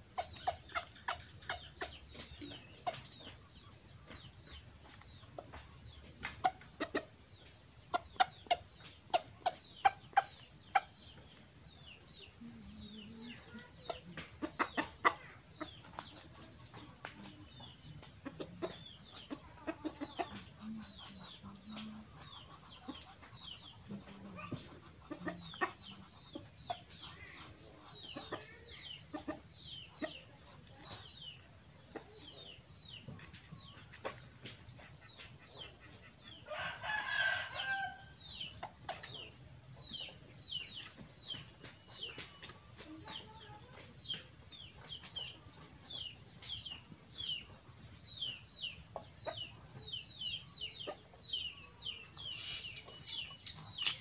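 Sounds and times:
chickens chirping: 0:00.0 - 0:54.0
rooster crowing: 0:36.5 - 0:38.1.

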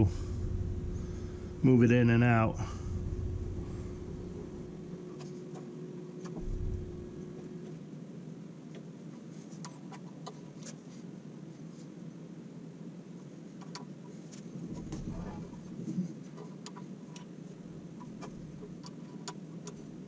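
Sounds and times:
soft low thump: 0:00.0 - 0:04.9, 0:06.4 - 0:07.7
faint steady hum: 0:00.0 - 0:20.0.

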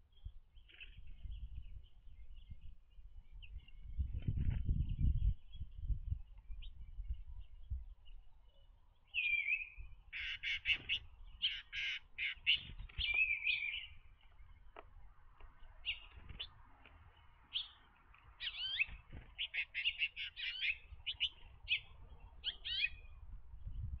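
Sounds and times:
songbirds chipping and trilling: 0:00.0 - 0:24.0.

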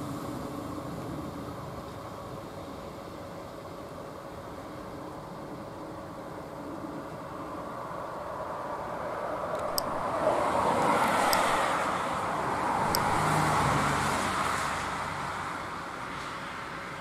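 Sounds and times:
vehicle passing by: 0:10.0 - 0:16.6.

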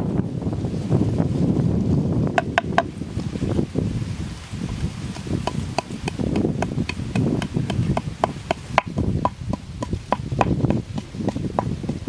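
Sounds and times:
pestle pounding in mortar: 0:02.3 - 0:02.9, 0:05.1 - 0:12.0.

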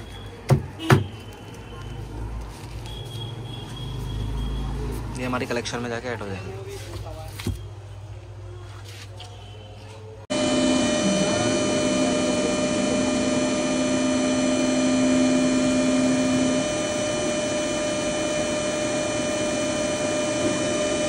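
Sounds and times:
machine hum and whine: 0:10.3 - 0:21.0.

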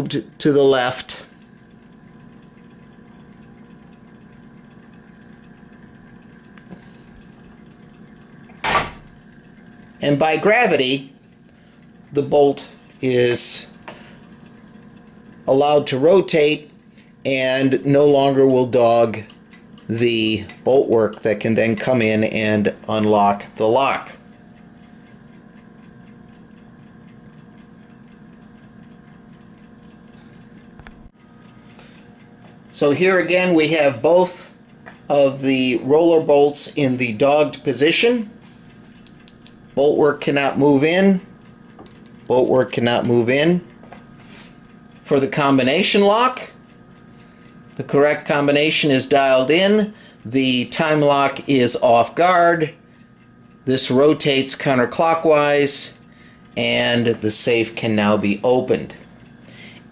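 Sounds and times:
clockwork ticking: 0:00.0 - 0:59.9
steady low hum: 0:00.0 - 0:59.9
sharp click: 0:08.5 - 0:09.2, 0:38.9 - 0:39.7
lock bolt clunk: 0:08.6 - 0:09.1.

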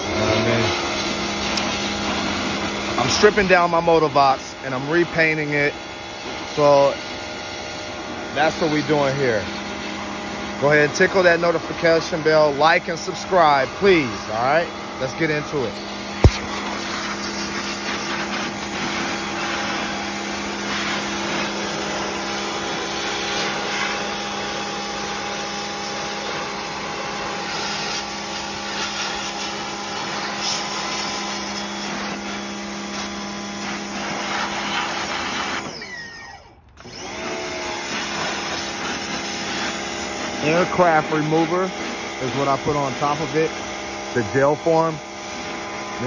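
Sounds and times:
water jet spraying on metal: 0:00.0 - 0:35.7, 0:37.3 - 0:46.0
pressure washer motor hum: 0:00.0 - 0:46.0.

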